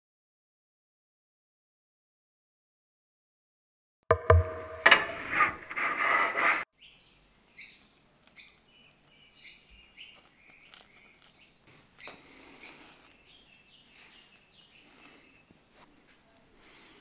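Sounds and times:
faint bird chirps: 6.8 - 15.5.

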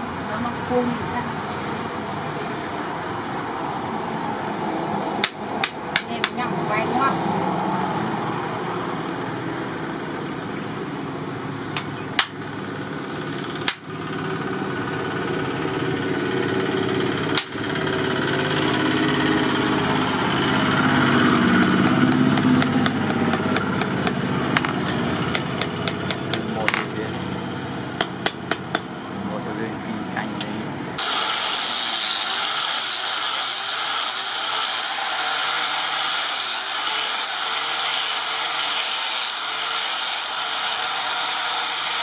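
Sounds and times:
steady engine hum: 0.0 - 32.2
hammer striking metal on anvil: 21.3 - 26.9, 28.0 - 28.9.

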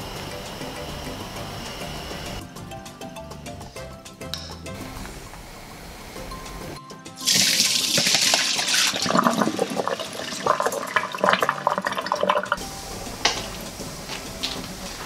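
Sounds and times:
water draining into a colander: 7.2 - 12.6.

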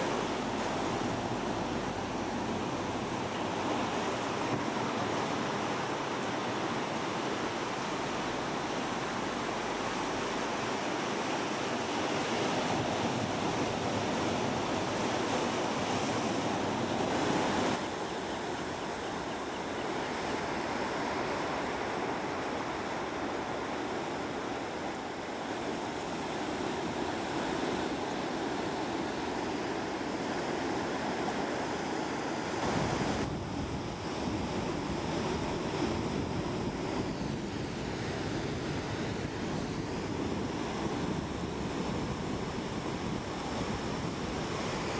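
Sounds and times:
ocean surf breaking: 0.0 - 44.9
wind on microphone: 32.6 - 44.9.

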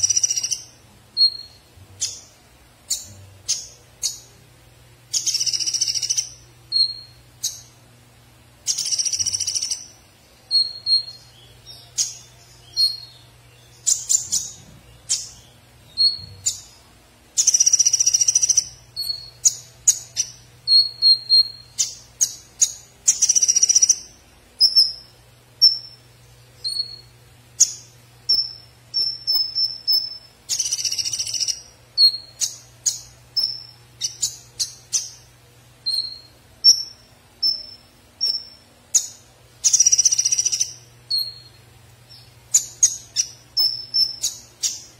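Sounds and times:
sunbird singing high chips: 0.0 - 4.4, 5.1 - 7.8, 8.6 - 44.9.

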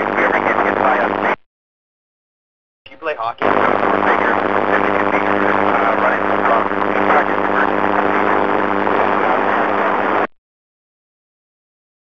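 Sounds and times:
faint voice over radio: 0.0 - 1.4, 2.9 - 10.3
radio static: 0.0 - 1.5, 2.9 - 10.4.

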